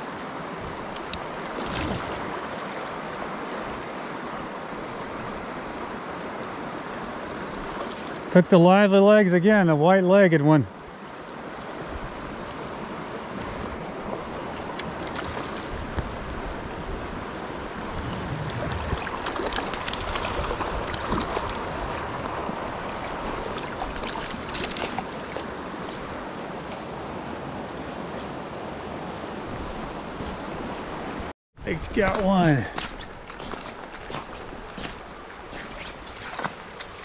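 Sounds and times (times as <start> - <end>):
creek current rushing: 0.0 - 37.0
fish thrashing and splashing: 18.2 - 25.9, 32.8 - 37.0.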